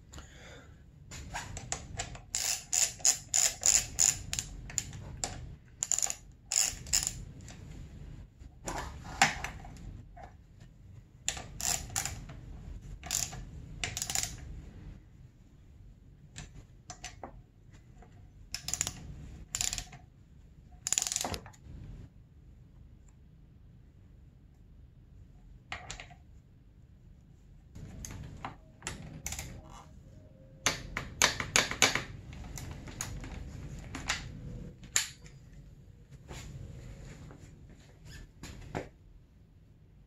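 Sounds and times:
socket ratchet clicking: 0:01.6 - 0:07.5, 0:11.3 - 0:12.4, 0:13.0 - 0:14.5, 0:18.6 - 0:20.0, 0:20.9 - 0:21.4, 0:28.8 - 0:29.6.

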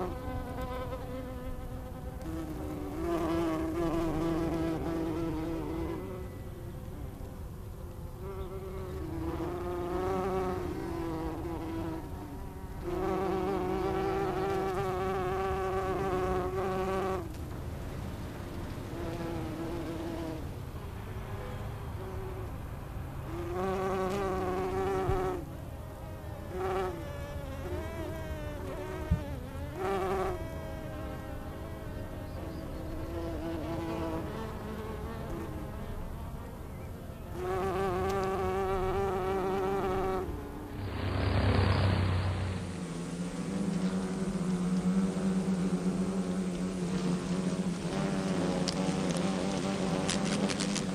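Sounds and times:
insect wings buzzing: 0:00.0 - 0:17.4, 0:37.2 - 0:50.9.

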